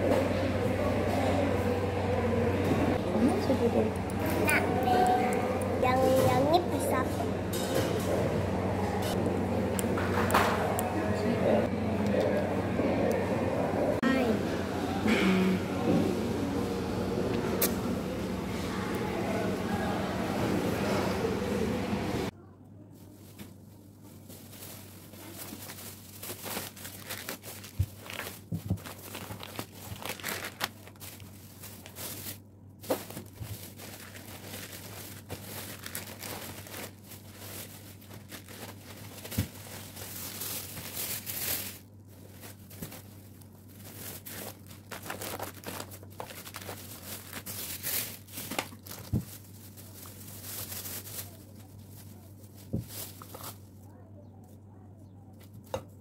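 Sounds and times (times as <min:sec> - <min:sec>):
plastic bags rustling: 0:23.0 - 0:53.9.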